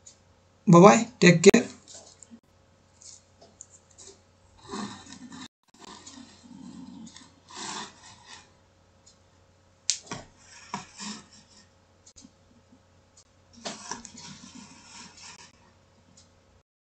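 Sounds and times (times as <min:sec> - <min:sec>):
rubbing and scraping: 0:03.0 - 0:08.6, 0:10.1 - 0:12.3, 0:13.6 - 0:15.7.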